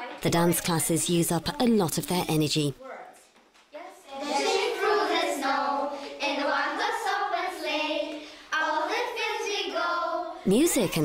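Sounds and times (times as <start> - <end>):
child singing: 4.1 - 10.4.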